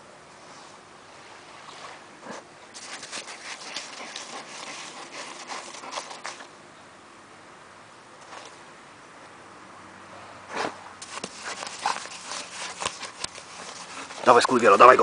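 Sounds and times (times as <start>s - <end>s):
dogs scratching in sand: 2.2s - 6.5s, 10.5s - 15.0s.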